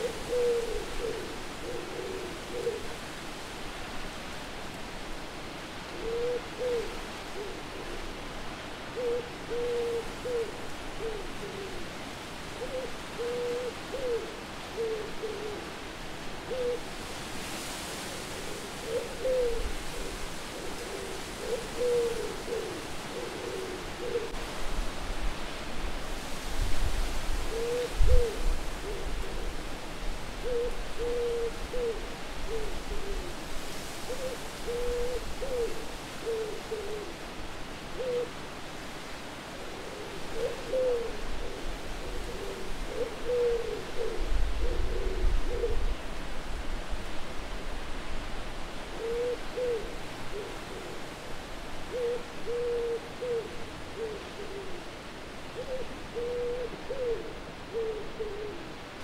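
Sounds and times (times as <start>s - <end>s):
wind hiss and gusts: 0.0s - 59.0s
owls hooting: 51.9s - 54.8s, 55.6s - 58.6s.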